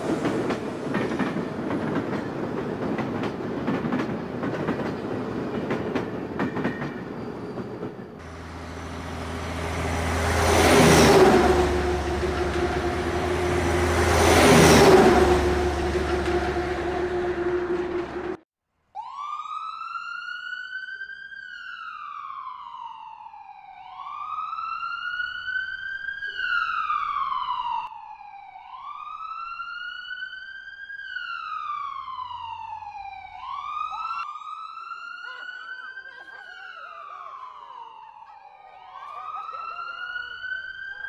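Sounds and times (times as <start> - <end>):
emergency siren wailing: 8.2 - 18.4, 19.0 - 41.0
vehicle running: 8.2 - 18.4.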